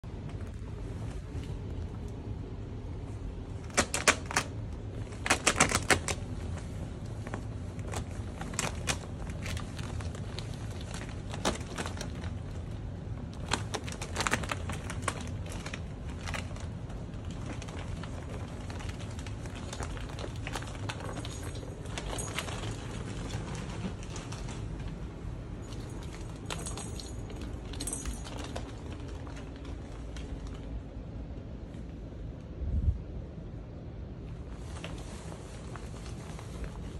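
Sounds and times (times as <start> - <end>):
ribbed plastic clattering clicks: 3.6 - 6.4
ferrets scrambling through plastic tube: 3.6 - 25.0.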